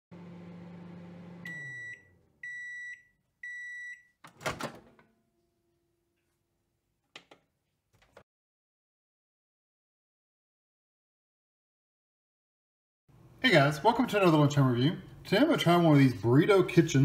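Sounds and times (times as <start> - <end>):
microwave oven humming: 0.1 - 3.8
microwave beeps: 1.3 - 4.2.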